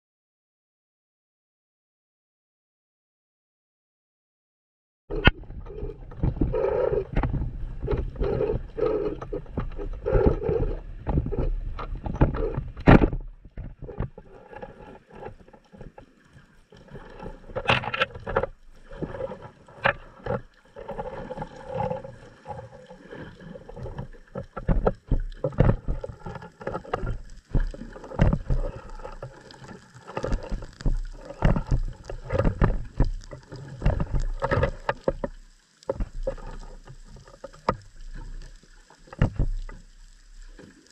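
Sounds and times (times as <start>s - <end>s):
muffled underwater noise: 5.1s - 16.0s, 16.8s - 40.9s
knocks and thumps: 9.2s - 14.1s, 26.9s - 28.8s, 30.2s - 35.3s, 39.2s - 39.6s.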